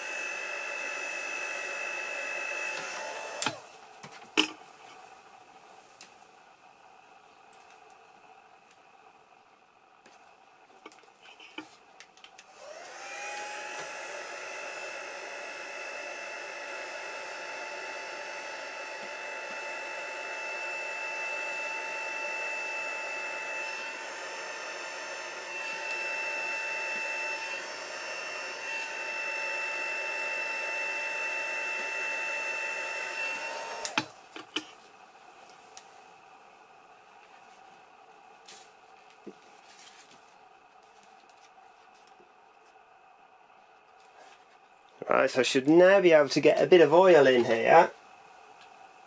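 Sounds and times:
heat gun motor whine: 0:00.0 - 0:04.6, 0:12.3 - 0:35.3.

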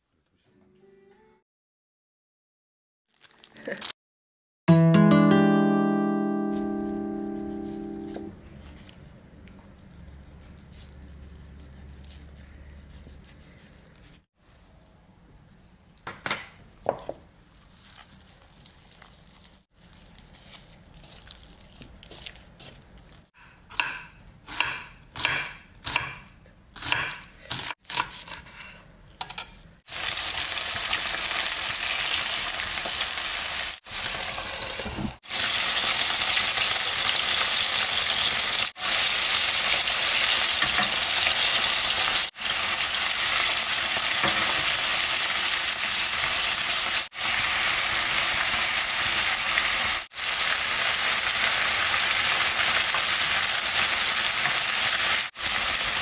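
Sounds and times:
food sizzling in hot oil: 0:29.9 - 0:56.0.

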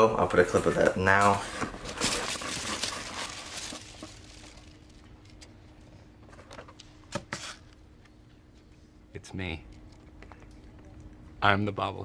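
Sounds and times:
faint steady hum: 0:00.0 - 0:12.0
cardboard box flaps rustling: 0:01.5 - 0:04.4.

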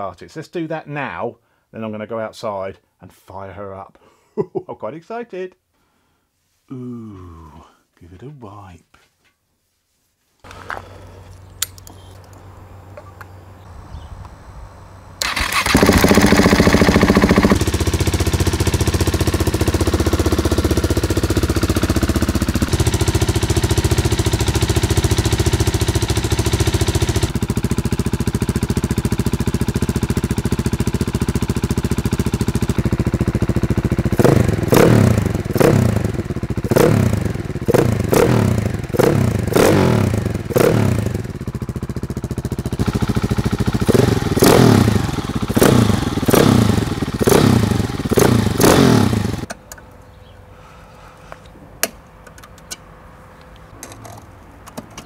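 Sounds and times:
motorcycle engine idling and revving: 0:15.2 - 0:49.6.

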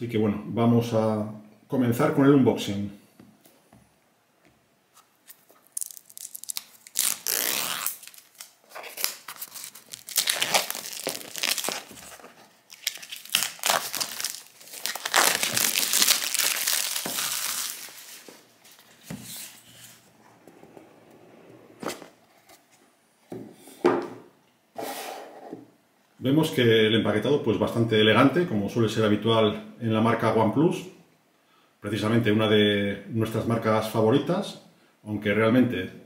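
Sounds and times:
packaging torn and crumpled: 0:05.2 - 0:19.0.

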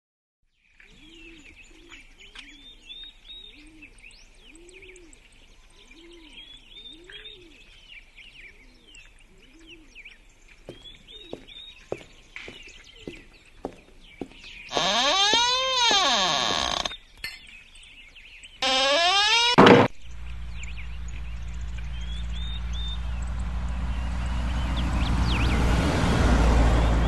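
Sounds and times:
small birds chirping: 0:00.6 - 0:26.0
sharp knocks: 0:19.5 - 0:20.0.

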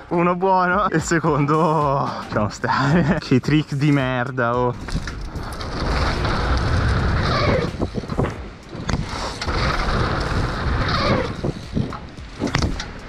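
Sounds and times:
bike rolling over dirt: 0:04.6 - 0:13.0
wind buffeting microphone: 0:04.6 - 0:13.0
sharp clicks and knocks: 0:07.7 - 0:13.0.

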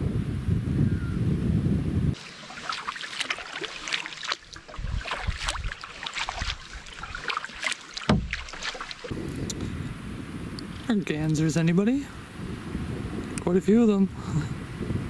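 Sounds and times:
paddle splashing water: 0:02.2 - 0:09.8
dull knock: 0:08.1 - 0:08.4.

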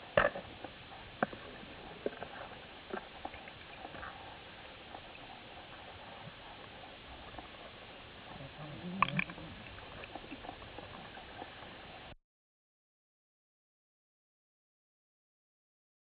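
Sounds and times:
low underwater burble: 0:00.0 - 0:12.1
underwater low hiss: 0:00.0 - 0:12.2
faint crackling clicks: 0:00.2 - 0:12.1.

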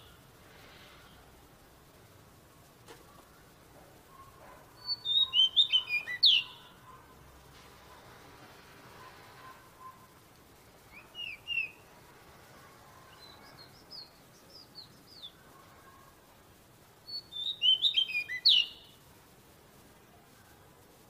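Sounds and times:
bird singing whistled notes: 0:04.1 - 0:06.9, 0:10.9 - 0:11.9, 0:13.1 - 0:15.4, 0:17.0 - 0:19.0.

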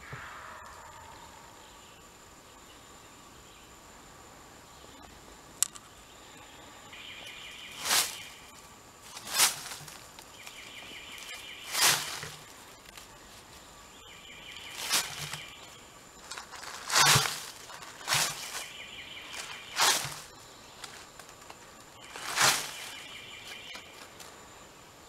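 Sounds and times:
rustles in dry leaves: 0:06.9 - 0:24.7.

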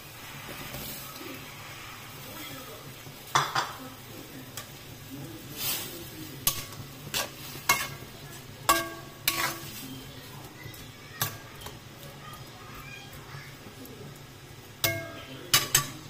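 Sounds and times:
low sizzle: 0:00.0 - 0:16.0
spatula knocking and scraping wok: 0:05.6 - 0:12.0, 0:14.7 - 0:16.0.

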